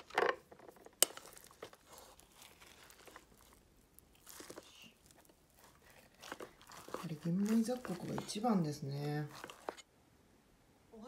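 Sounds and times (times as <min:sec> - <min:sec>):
rice paddle scraping rice: 0:04.2 - 0:09.8.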